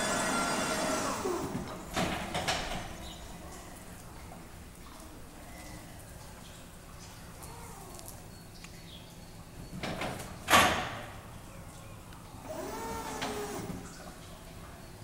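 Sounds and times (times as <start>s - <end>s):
forklift whine: 0.0s - 1.8s.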